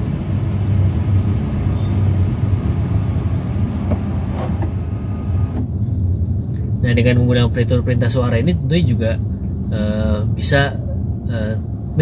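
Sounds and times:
sunroof closing: 0.0s - 5.7s
car cabin hum: 0.0s - 5.8s.

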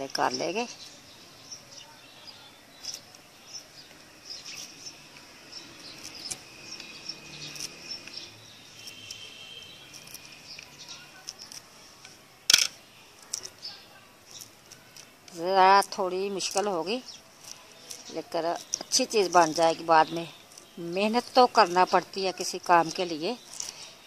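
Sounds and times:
small birds chirping: 0.0s - 24.0s
knife paring lemon rind: 4.4s - 11.7s.

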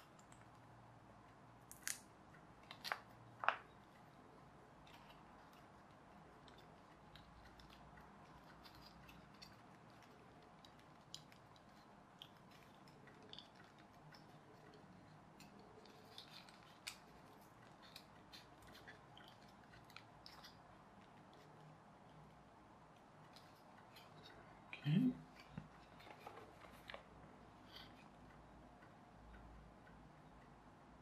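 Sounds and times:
card rustling: 25.3s - 27.1s.

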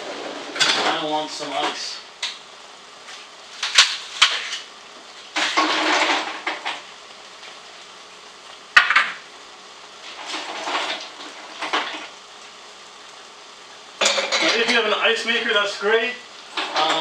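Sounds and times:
ice rattling clatter: 5.4s - 6.8s, 10.2s - 12.1s, 16.5s - 17.0s.

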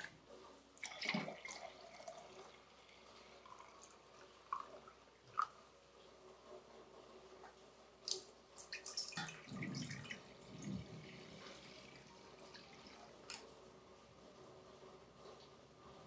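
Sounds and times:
liquid trickling and dripping: 0.8s - 5.6s, 7.9s - 13.5s.

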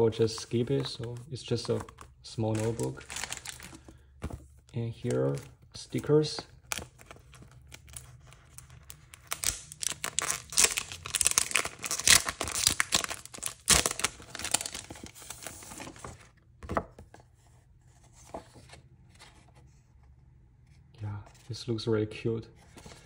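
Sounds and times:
packaging crinkling and tearing: 0.3s - 4.0s, 6.6s - 16.2s.

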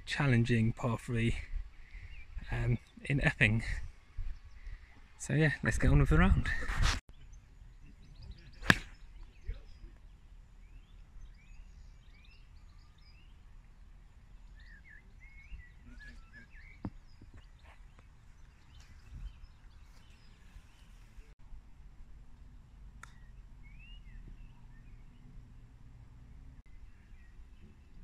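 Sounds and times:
birds chirping and singing: 7.1s - 21.3s, 23.1s - 25.3s, 26.7s - 28.0s.

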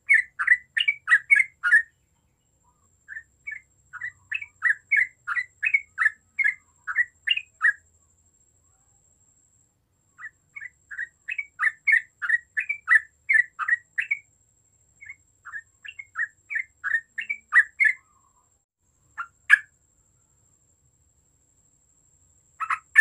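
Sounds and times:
bird singing rapid notes: 0.0s - 7.8s, 10.2s - 14.3s, 15.0s - 18.4s, 19.2s - 19.7s, 22.6s - 23.0s.

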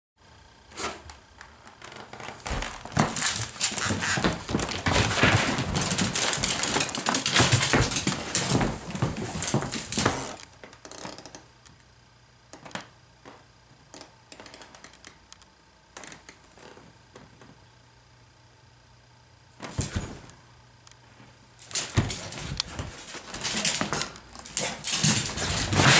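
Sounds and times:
dog claws clicking on hard floor: 1.9s - 11.3s, 21.6s - 25.9s.

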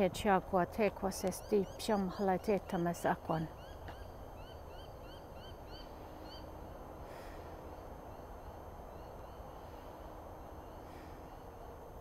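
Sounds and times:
low background rush: 0.0s - 12.0s
bird chirping: 1.1s - 6.5s.

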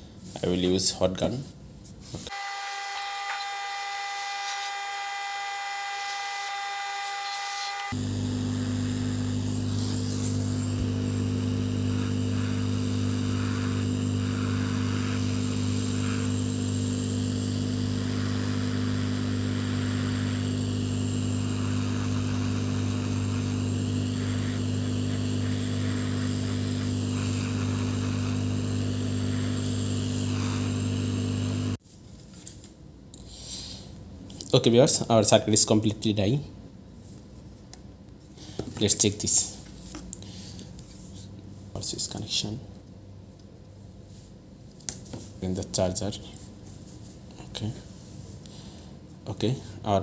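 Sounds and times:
hot air gun blowing: 2.3s - 31.8s.

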